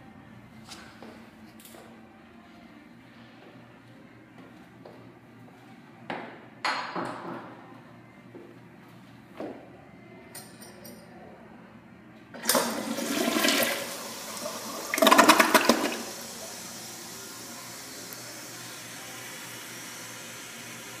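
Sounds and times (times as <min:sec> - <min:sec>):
toilet flushing: 0:12.4 - 0:21.0.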